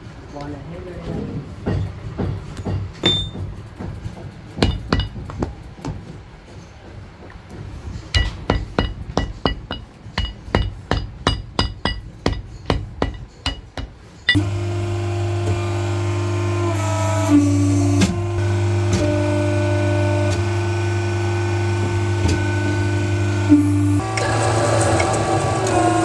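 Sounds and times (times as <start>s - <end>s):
electric motor hum: 14.4s - 26.0s.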